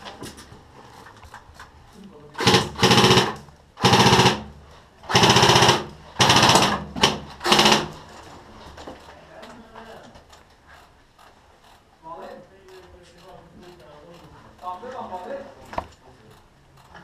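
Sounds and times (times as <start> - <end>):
airsoft gun firing bursts: 2.4 - 8.0.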